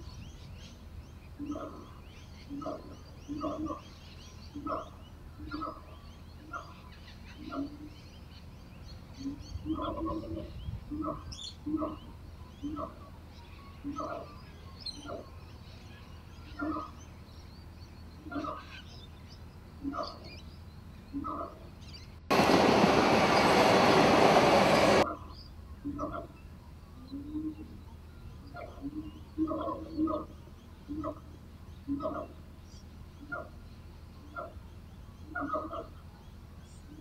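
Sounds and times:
small birds chirping faintly: 0.0 - 22.3, 24.6 - 37.0
steady low rumble: 22.2 - 25.8.

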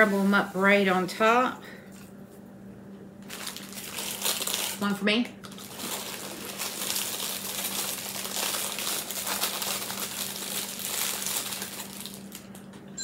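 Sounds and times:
plastic sleeve crinkling: 3.2 - 12.7
crackers crunching: 3.2 - 12.8.

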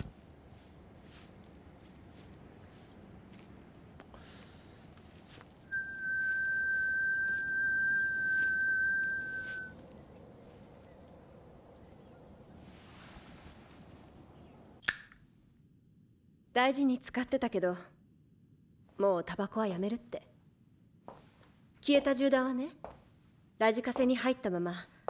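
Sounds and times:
high-pitched pure tone: 5.7 - 9.8.

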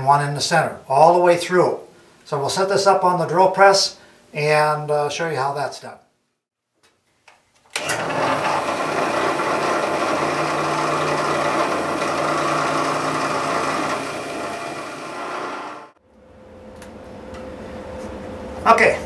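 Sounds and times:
drill press drilling wood: 7.8 - 16.0.

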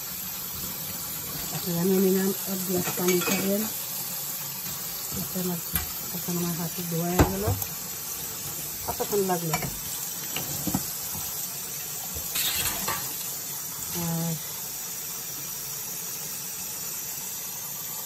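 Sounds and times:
tap water running into sink: 0.0 - 18.0
glass cups being scrubbed: 2.8 - 3.6.

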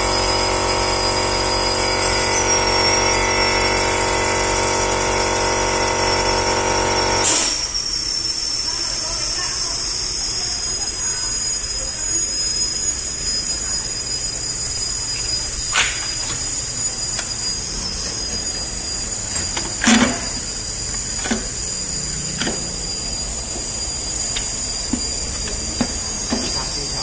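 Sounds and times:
high-pitched electrical whine: 0.0 - 27.0.

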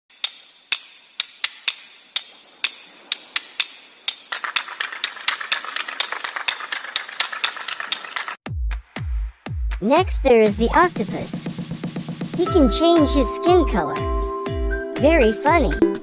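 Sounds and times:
crab claws clicking: 0.1 - 8.4.

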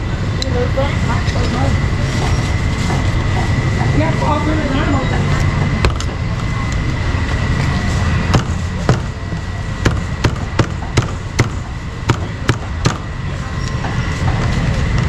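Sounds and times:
steady background hum: 0.0 - 15.0
cleaver chopping meat on wood: 9.8 - 13.0.

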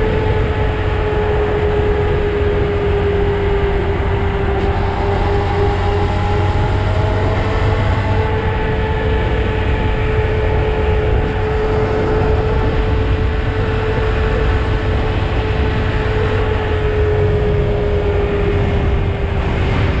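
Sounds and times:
motorcycle engine running: 0.0 - 20.0
wind on microphone: 0.0 - 20.0.

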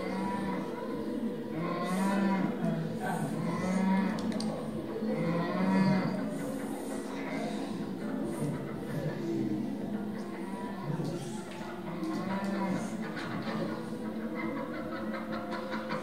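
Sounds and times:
low moo-like calls: 0.0 - 9.7, 11.9 - 13.8.

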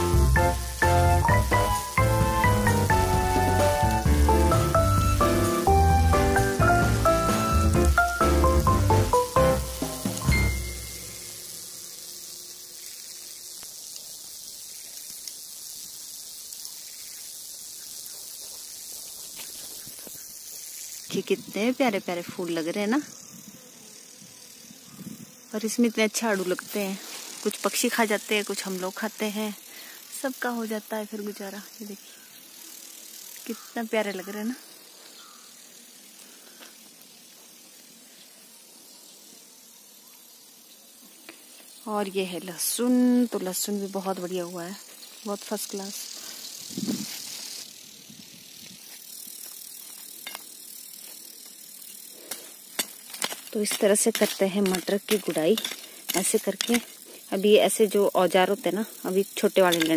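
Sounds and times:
steady high hiss: 0.0 - 59.9
hand hoe ticking on stony soil: 52.3 - 57.0.

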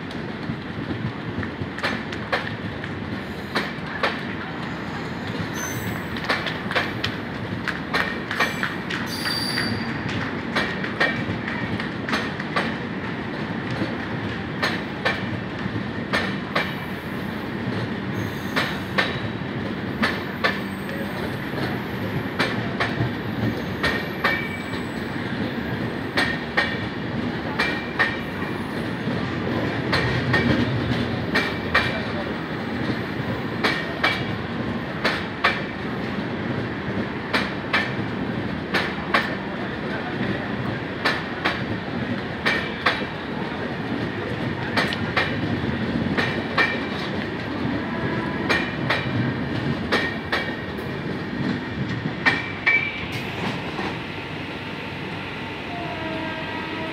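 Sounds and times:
train rumble: 0.0 - 56.9
train wheels clacking over rail joints: 0.1 - 4.4, 5.2 - 16.9, 17.7 - 36.2, 36.9 - 43.2, 43.9 - 54.0
high wheel squeals: 9.1 - 9.9.

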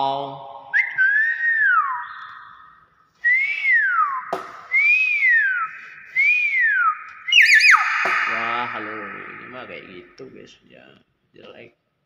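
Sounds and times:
bird whistling: 0.8 - 10.1
sharp click: 7.8 - 9.4.

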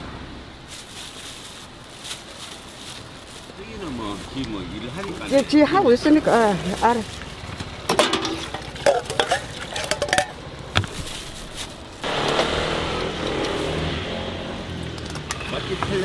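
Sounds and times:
utensils clinking against pot: 7.9 - 10.4.

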